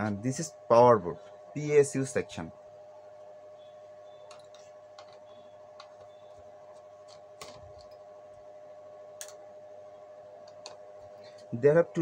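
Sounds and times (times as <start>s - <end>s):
faint hum: 0.0s - 12.0s.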